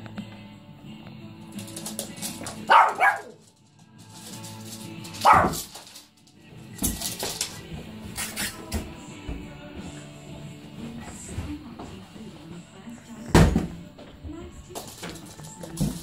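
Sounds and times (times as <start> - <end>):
background music: 0.0 - 16.0
small dog barking: 2.6 - 3.4, 5.2 - 5.7.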